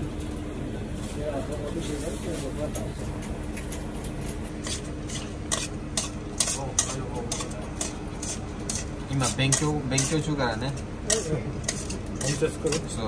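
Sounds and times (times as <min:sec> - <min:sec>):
steady low hum: 0:00.0 - 0:13.0
tongs scraping metal bowl: 0:04.6 - 0:13.0.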